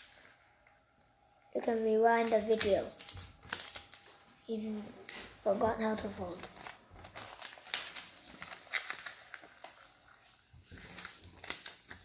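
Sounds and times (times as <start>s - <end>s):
paper rustling and crackling: 2.2s - 4.3s, 5.0s - 12.0s.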